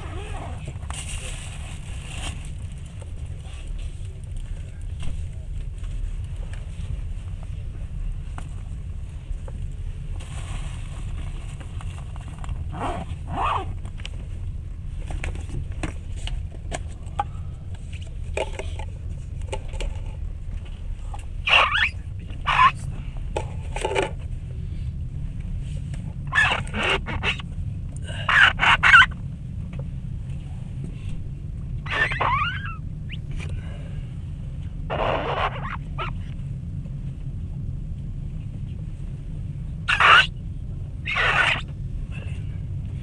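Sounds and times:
train rumble inside carriage: 0:00.0 - 0:34.9
train squeaks and scrapes: 0:21.4 - 0:22.8, 0:31.9 - 0:32.8.

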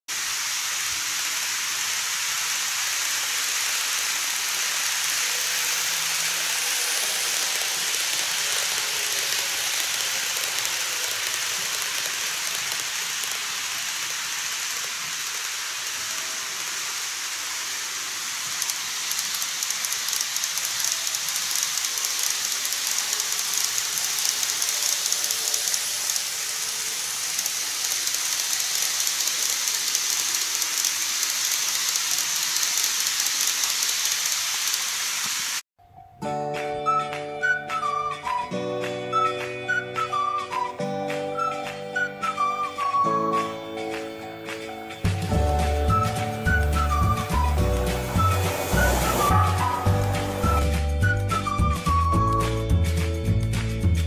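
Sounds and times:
model train rolling hiss: 0:00.1 - 0:35.6, 0:39.1 - 0:52.3
train wheels clicking over rail joints: 0:02.3 - 0:35.4.

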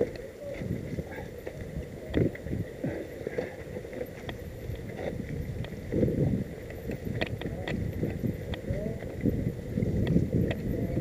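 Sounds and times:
mountain bike rattling over rocks: 0:00.0 - 0:11.0.

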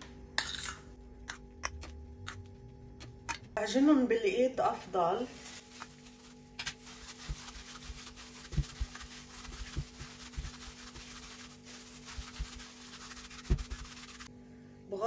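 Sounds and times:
hands kneading dough: 0:05.3 - 0:14.3.

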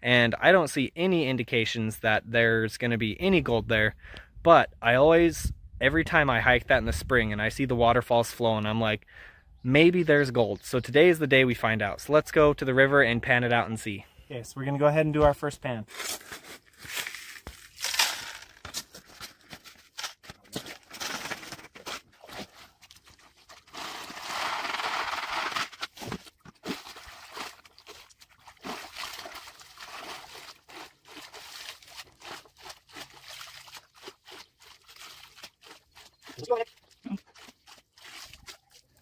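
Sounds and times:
gravel crunching and scraping: 0:15.2 - 0:39.0
water splashing: 0:26.6 - 0:39.0.

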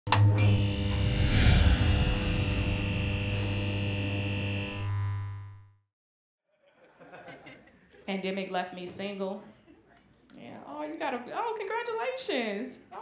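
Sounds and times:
steady electric hum: 0:00.5 - 0:05.5
whoosh: 0:00.8 - 0:03.9.

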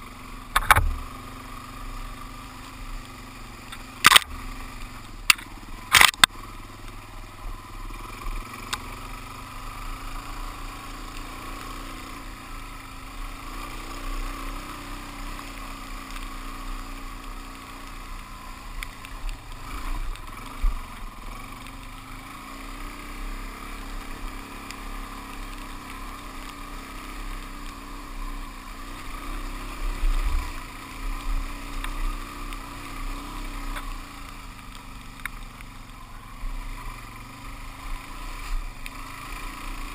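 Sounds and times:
motorcycle engine running: 0:00.0 - 0:39.9
sharp clicks: 0:00.5 - 0:01.1, 0:03.0 - 0:04.4, 0:05.0 - 0:07.0.

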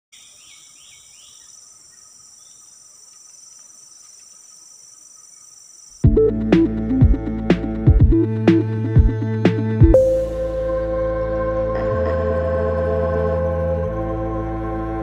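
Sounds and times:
insect chirps: 0:00.1 - 0:06.0
insect chorus drone: 0:00.2 - 0:06.0
electronic music with heavy beat: 0:06.0 - 0:10.4.

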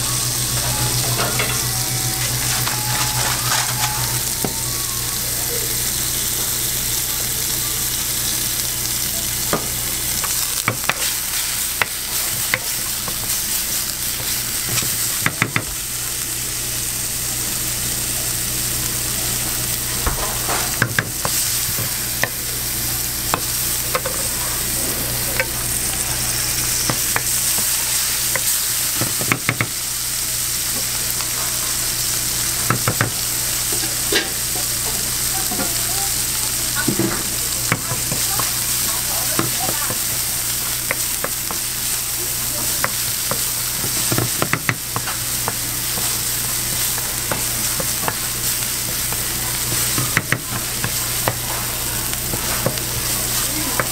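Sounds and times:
meat sizzling in oil: 0:00.0 - 0:53.9
spatula scraping a pan: 0:00.7 - 0:04.1.

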